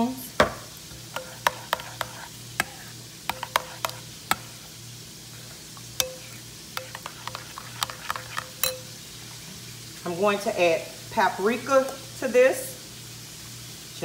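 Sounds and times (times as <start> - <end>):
utensil clinking in bowl: 1.1 - 4.4, 6.0 - 9.0.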